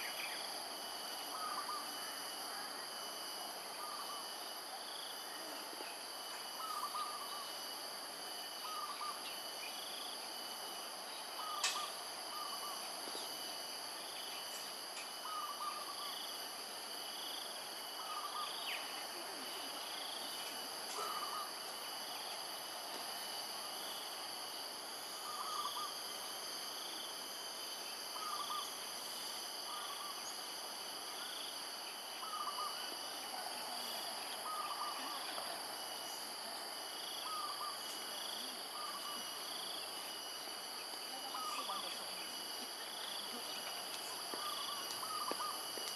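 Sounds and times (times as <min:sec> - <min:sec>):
high-pitched insect drone: 0:00.0 - 0:45.9.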